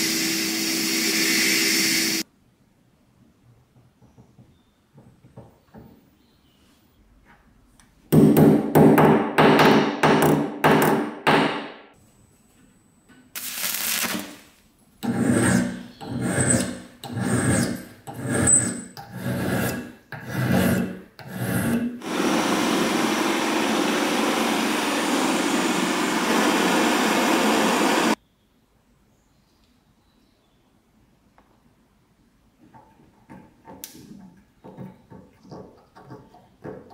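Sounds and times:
file rasping on steel: 0:15.0 - 0:22.0.

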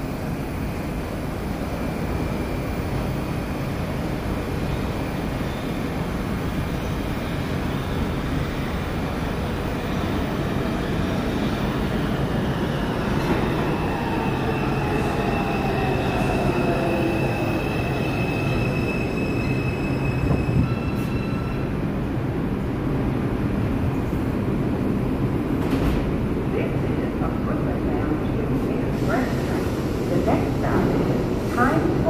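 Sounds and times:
subway train rumble: 0:00.0 - 0:32.0
high brake squeal: 0:14.1 - 0:21.8.

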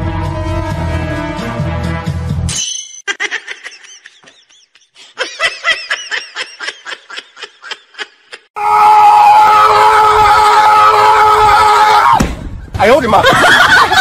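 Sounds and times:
person laughing: 0:03.1 - 0:08.5, 0:13.2 - 0:14.0.

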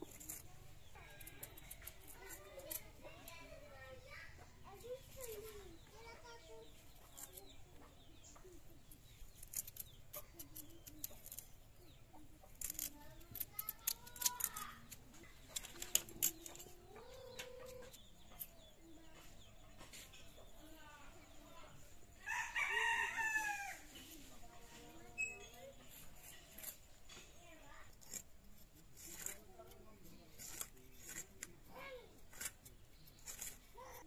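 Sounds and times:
sharp clicks: 0:12.5 - 0:16.7
rooster crowing: 0:22.2 - 0:23.8.

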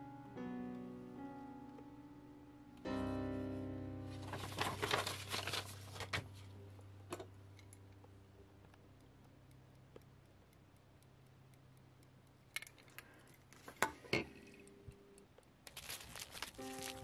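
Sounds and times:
slow quiet music: 0:00.0 - 0:12.6, 0:14.0 - 0:17.0
paper crinkling and rustling: 0:04.1 - 0:06.4, 0:15.7 - 0:17.0.

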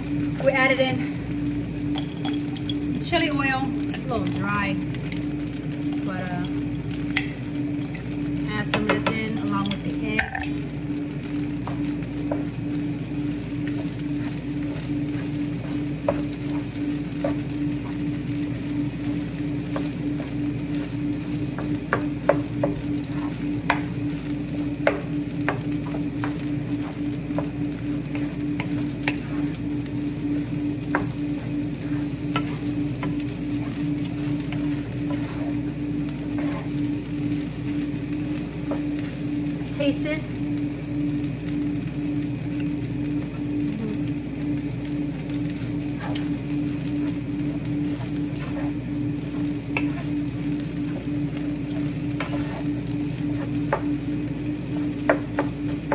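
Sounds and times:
rice sizzling in a frying pan: 0:00.0 - 0:55.9
steady low hum: 0:00.0 - 0:55.9
wooden spoon scraping a pan: 0:21.6 - 0:23.9, 0:24.9 - 0:29.6, 0:30.9 - 0:37.8, 0:45.7 - 0:50.2, 0:51.6 - 0:53.9.

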